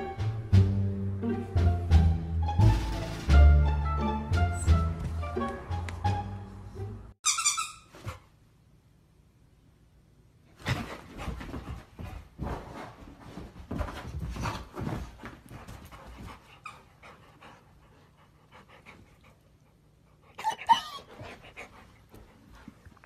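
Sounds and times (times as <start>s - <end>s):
dog panting: 10.7s - 23.0s
high-pitched dog whine: 20.3s - 21.3s.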